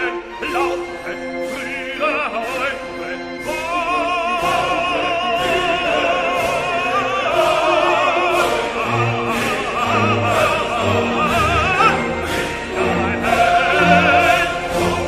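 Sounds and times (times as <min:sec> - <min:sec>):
operatic singing voice: 0:00.0 - 0:15.0
orchestral music: 0:00.0 - 0:15.0.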